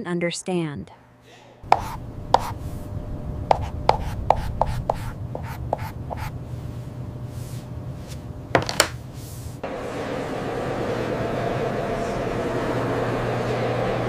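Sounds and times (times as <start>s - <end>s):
low steady hum: 0.0s - 14.0s
stylus tapping on tablet screen: 1.8s - 2.6s, 3.5s - 6.3s.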